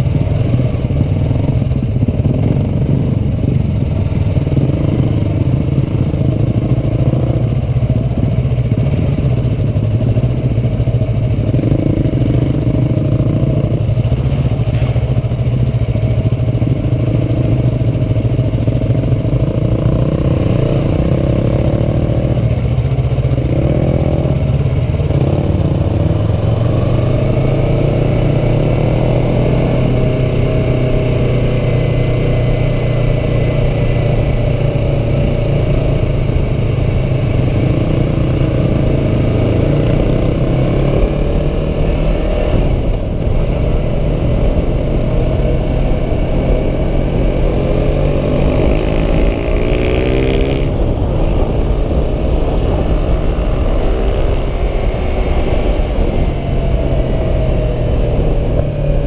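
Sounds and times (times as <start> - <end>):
motorcycle engine running: 0.0 - 59.0
wind noise: 0.0 - 59.0.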